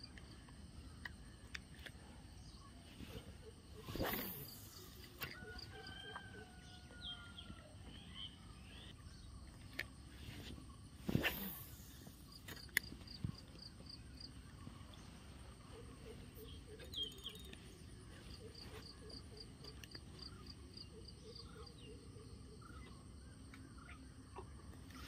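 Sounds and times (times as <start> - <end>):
insects chirping: 0.0 - 25.0
fishing rod whoosh: 3.0 - 5.4, 10.1 - 12.6.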